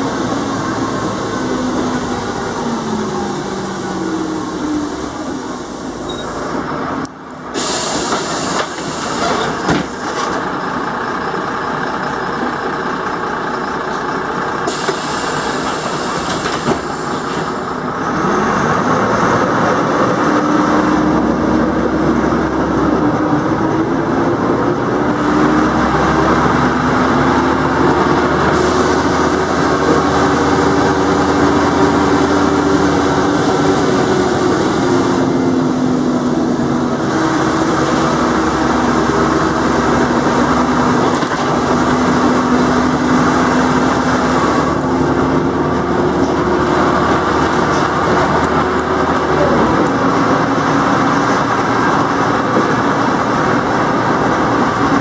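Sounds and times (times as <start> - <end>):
bus diesel engine: 0.0 - 55.0
air hissing: 7.5 - 9.6, 14.7 - 17.7, 28.5 - 31.4.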